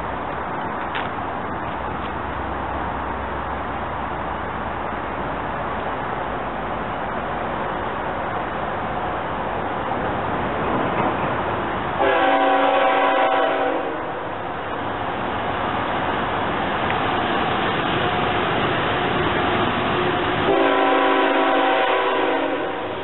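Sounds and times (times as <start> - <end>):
train noise: 0.0 - 23.0
locomotive horn blasts: 12.0 - 14.2, 20.4 - 23.0.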